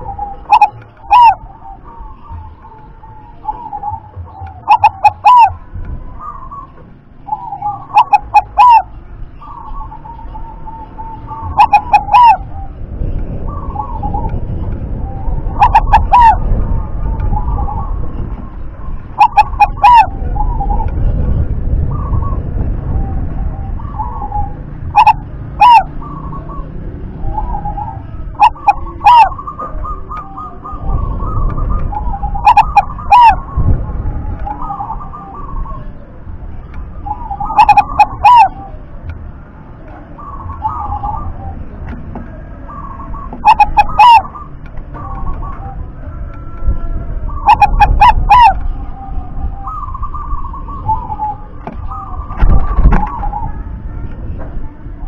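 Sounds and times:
dove cooing: 0:00.0 - 0:12.8, 0:13.4 - 0:36.2, 0:36.9 - 0:39.0, 0:39.8 - 0:53.6.

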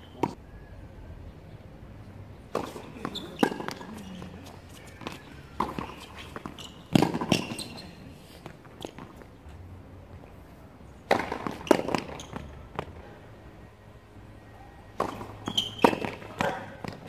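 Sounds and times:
tennis ball bounces: 0:02.5 - 0:09.3, 0:11.0 - 0:13.0, 0:14.9 - 0:17.0.

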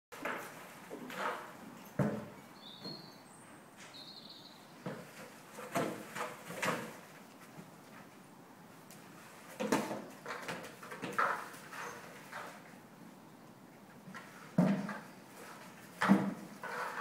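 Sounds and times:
small bird chirping: 0:02.6 - 0:04.7.

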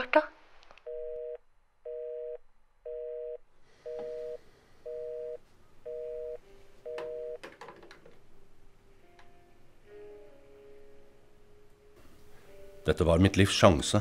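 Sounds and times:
telephone busy tone beeping: 0:00.9 - 0:07.4.

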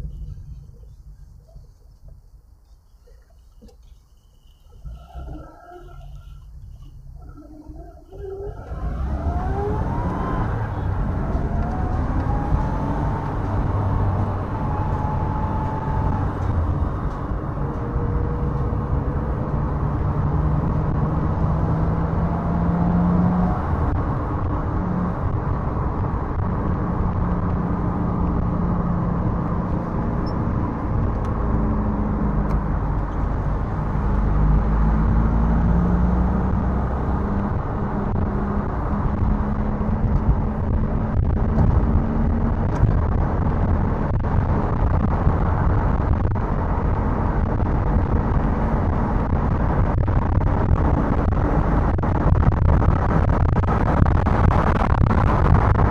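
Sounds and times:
car engine: 0:00.0 - 0:55.9.

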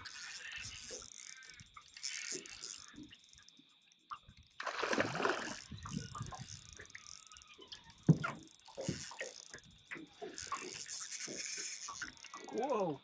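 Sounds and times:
water splashing: 0:04.6 - 0:07.0
knocks on boat: 0:08.1 - 0:09.0.

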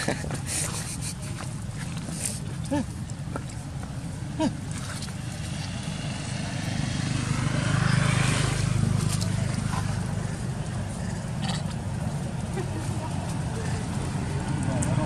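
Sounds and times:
motorbike passing: 0:04.4 - 0:15.0.

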